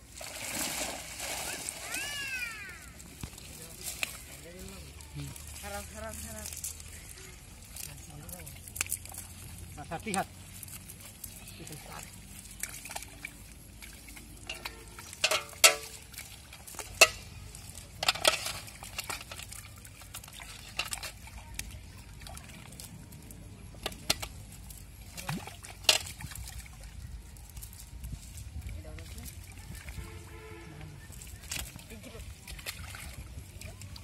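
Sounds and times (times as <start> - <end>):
fish splashing in shallow water: 0.0 - 34.0.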